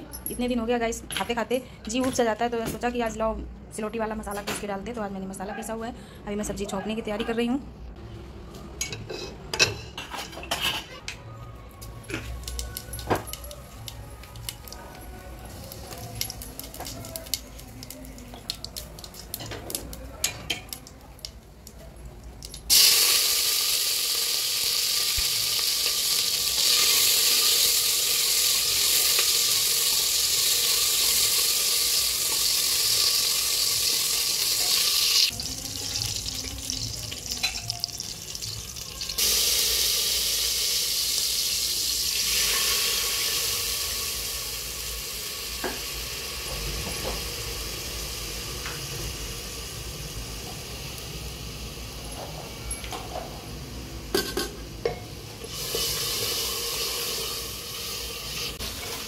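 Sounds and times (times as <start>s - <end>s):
seeds crackling in hot oil: 11.8s - 52.1s, 55.2s - 59.0s
vegetables sizzling in hot oil: 22.7s - 52.1s, 54.6s - 59.0s.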